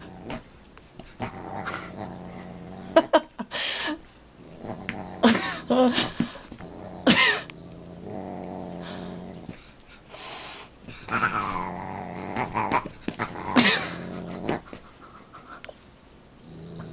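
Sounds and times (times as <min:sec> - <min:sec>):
dog growling: 0:00.0 - 0:00.5, 0:01.1 - 0:03.3, 0:04.4 - 0:09.7, 0:11.0 - 0:14.9, 0:16.4 - 0:16.9.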